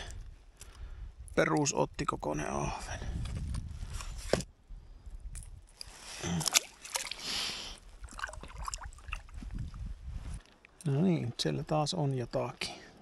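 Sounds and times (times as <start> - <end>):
water sloshing and splashing: 5.8 - 9.8.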